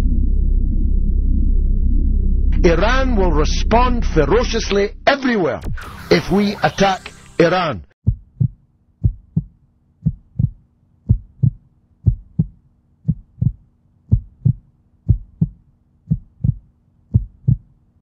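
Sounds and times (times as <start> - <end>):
heartbeat thumps: 8.0 - 17.8.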